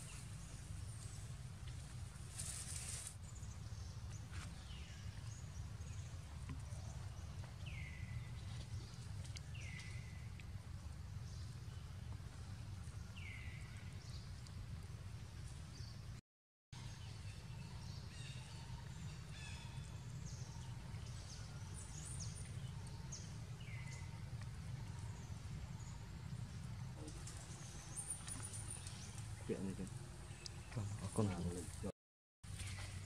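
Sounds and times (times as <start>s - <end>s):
steady low rumble: 17.2s - 31.9s.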